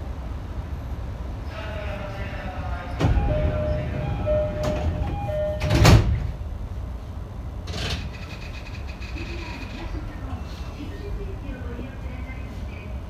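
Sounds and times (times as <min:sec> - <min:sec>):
steady low rumble: 0:00.0 - 0:07.6
sliding doors thudding shut: 0:03.0 - 0:06.4
two-note door chime: 0:03.2 - 0:05.8.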